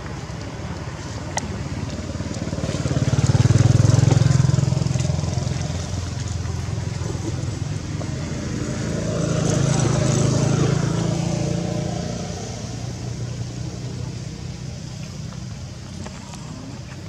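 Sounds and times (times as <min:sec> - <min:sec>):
vehicle engine running: 0:00.0 - 0:17.0.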